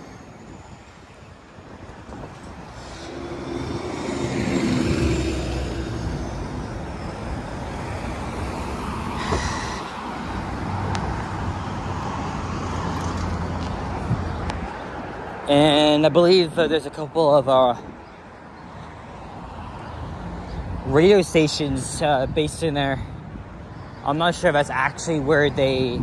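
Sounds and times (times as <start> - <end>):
bus passing by: 0.0 - 17.7
traffic noise from cars: 0.0 - 26.0.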